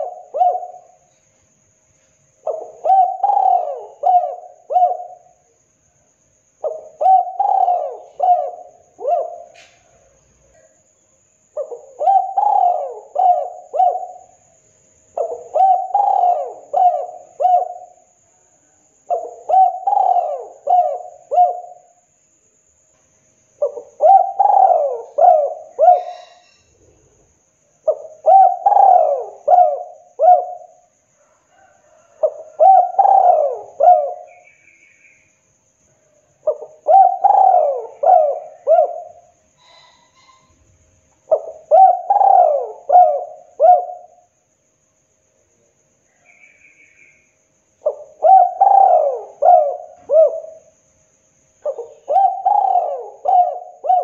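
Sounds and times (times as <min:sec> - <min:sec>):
dove cooing: 0:00.0 - 0:01.1, 0:02.4 - 0:05.4, 0:06.6 - 0:10.7, 0:11.6 - 0:14.4, 0:15.2 - 0:18.0, 0:19.1 - 0:21.9, 0:23.6 - 0:26.6, 0:27.8 - 0:34.4, 0:36.4 - 0:40.6, 0:41.2 - 0:44.3, 0:47.8 - 0:50.7, 0:51.6 - 0:54.0.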